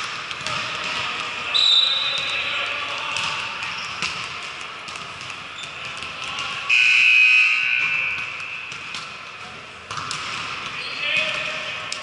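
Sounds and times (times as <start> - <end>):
referee's whistle blast: 1.5 - 2.2, 6.7 - 8.2.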